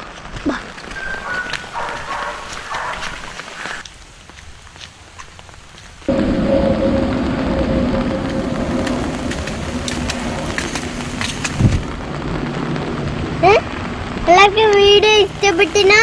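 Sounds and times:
steady rain: 0.0s - 16.0s
low steady hum: 6.1s - 14.2s.

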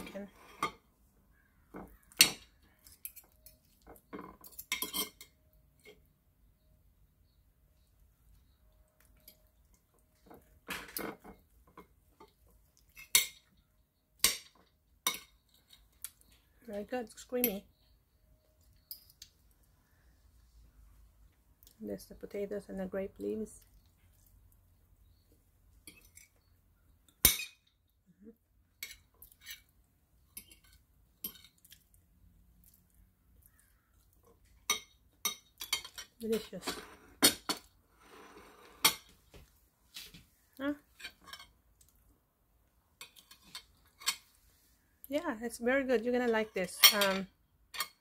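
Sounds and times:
metal fork scraping a plate: 4.6s - 5.3s.

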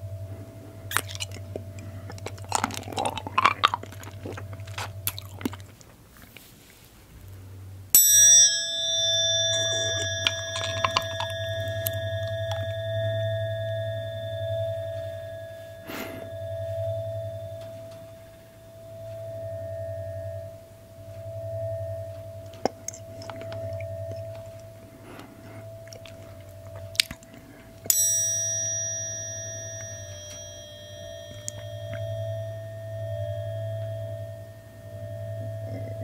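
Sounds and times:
soft clicks and mouth sounds: 0.9s - 6.6s, 22.4s - 27.5s
tuning fork struck sharply: 7.9s - 22.4s, 27.9s - 36.0s
tuning forks ringing: 7.9s - 26.9s, 27.5s - 36.0s.

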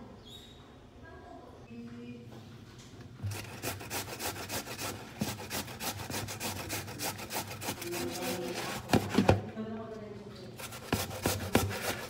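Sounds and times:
vegetable grated on metal grater: 3.3s - 9.3s, 10.6s - 12.0s.

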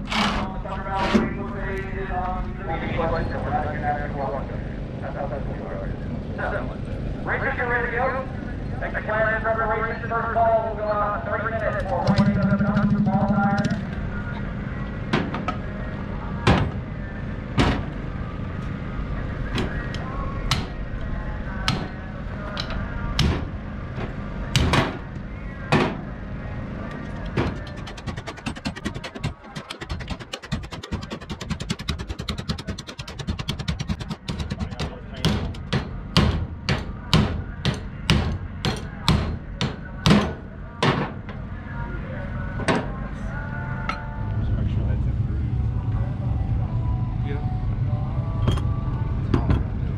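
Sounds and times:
hammer striking metal bearing: 27.4s - 40.4s.

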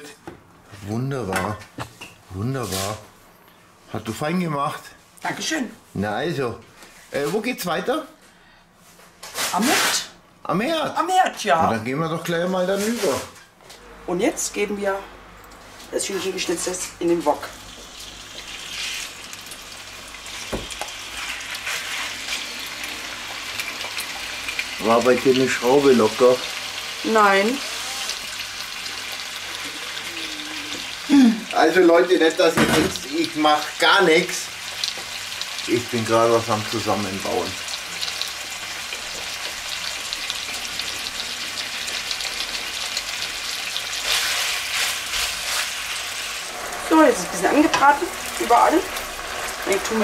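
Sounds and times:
chicken sizzling in hot oil: 17.2s - 50.0s.

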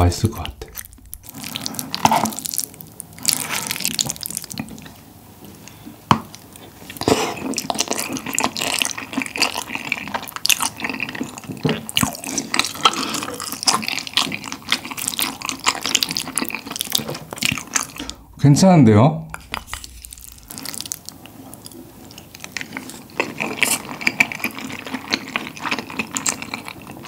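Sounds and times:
wet chewing and lip smacks: 19.3s - 27.0s.

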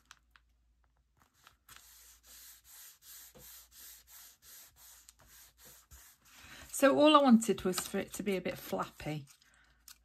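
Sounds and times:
fingers rubbing over paper: 1.3s - 6.4s.

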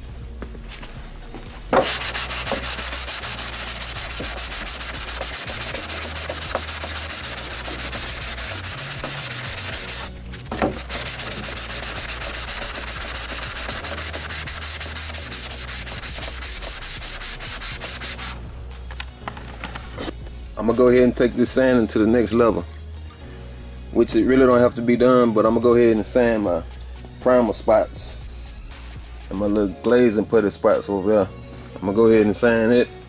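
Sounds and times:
sanding block rasping: 1.8s - 18.4s.

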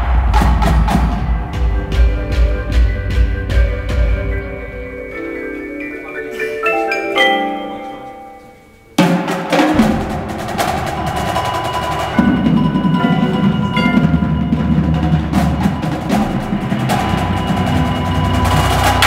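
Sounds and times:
heavy low drum strokes: 0.0s - 5.2s, 9.0s - 19.0s
snare and marching drums: 0.0s - 5.3s, 9.0s - 19.0s
marimbas and vibraphones: 0.6s - 19.0s.

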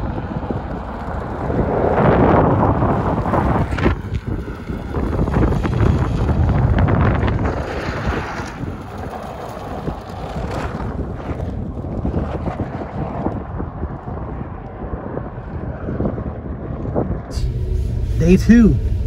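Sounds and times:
wind buffeting the microphone: 0.0s - 19.0s.

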